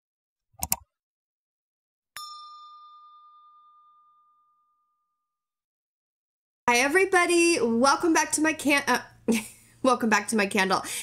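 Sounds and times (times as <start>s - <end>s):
sharp clicks: 0.6s - 0.8s
bell-like ding: 2.2s - 5.5s.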